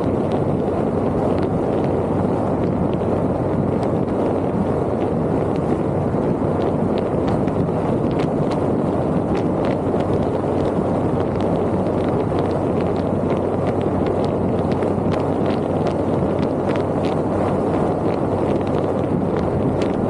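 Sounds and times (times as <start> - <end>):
vehicle road and wind noise: 0.0 - 20.0
small irregular clicks: 18.0 - 20.0.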